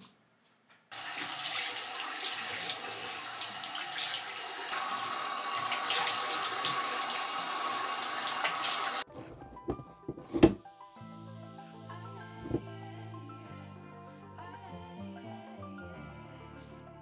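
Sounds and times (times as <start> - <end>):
tap running into a washbasin: 0.9 - 9.0.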